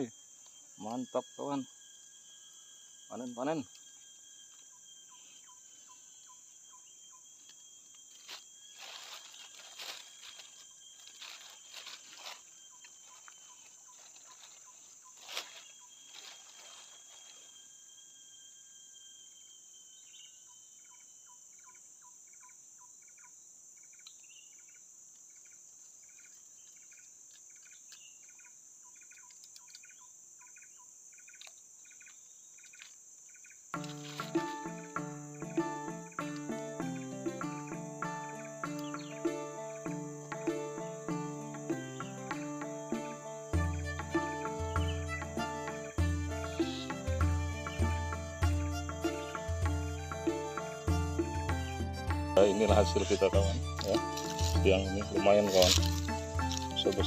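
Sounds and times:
high-pitched insect chorus: 0.0s - 57.0s.

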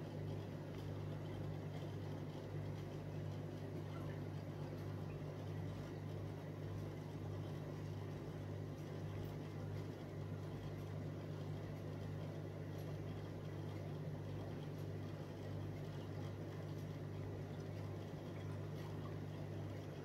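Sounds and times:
aquarium filter hum: 0.0s - 20.0s.

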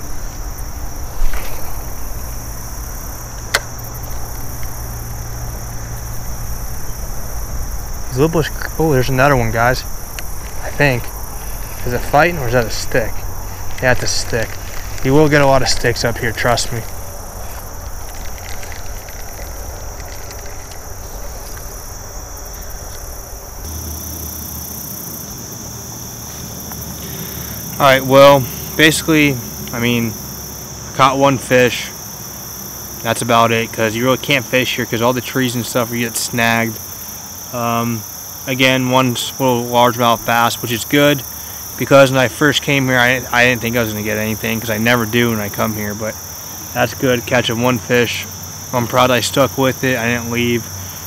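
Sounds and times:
high-pitched insect chorus: 0.0s - 51.0s
sharp click: 3.4s - 3.8s.

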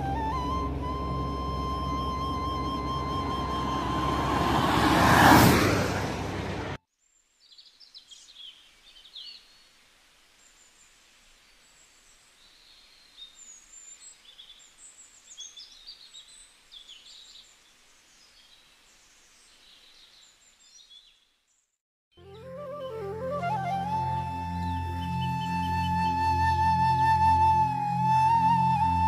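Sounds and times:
birds chirping and twittering: 7.0s - 9.8s, 10.4s - 21.7s
low background hiss: 7.0s - 21.6s.

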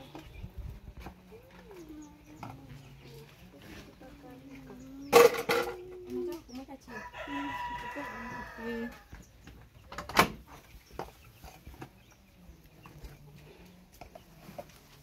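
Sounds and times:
rooster crowing: 6.9s - 9.2s.

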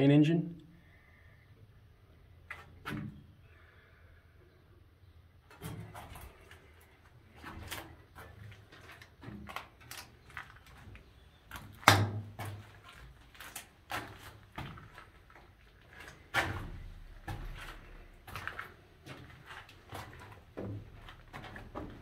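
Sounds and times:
footsteps on steel floor plates: 5.5s - 22.0s.

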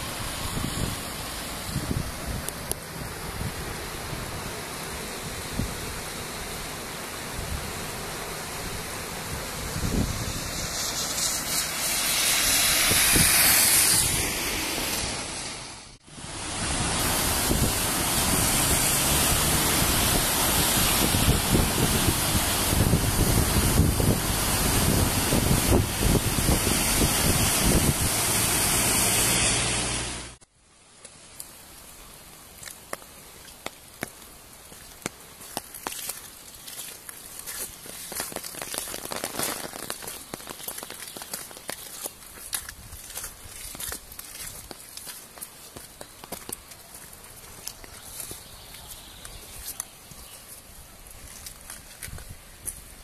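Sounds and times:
floodwater rushing: 0.0s - 30.4s, 31.3s - 53.0s
wind buffeting microphone: 0.2s - 4.6s, 8.7s - 14.4s, 16.8s - 28.6s.

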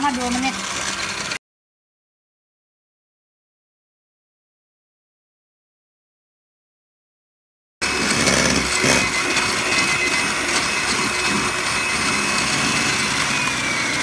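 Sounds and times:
electric hand mixer whirring: 0.0s - 1.4s, 7.8s - 14.0s.

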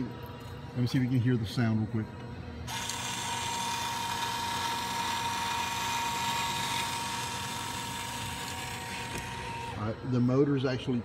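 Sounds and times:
motor gearbox whining: 2.7s - 9.8s.

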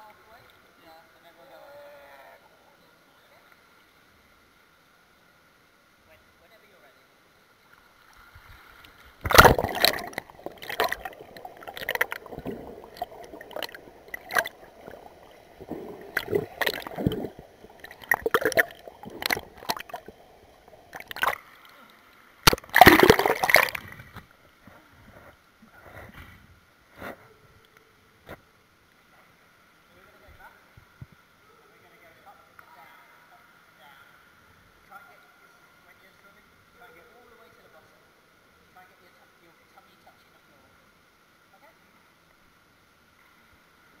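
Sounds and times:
pool water splashing: 7.8s - 24.2s
muffled underwater gurgling: 9.3s - 21.4s, 22.5s - 23.9s.

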